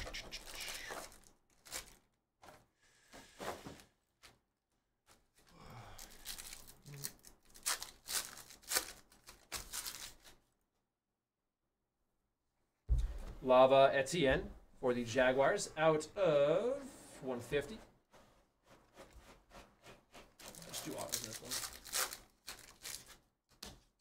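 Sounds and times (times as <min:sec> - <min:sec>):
foil pack tearing: 0:06.0 - 0:10.4, 0:20.4 - 0:23.2.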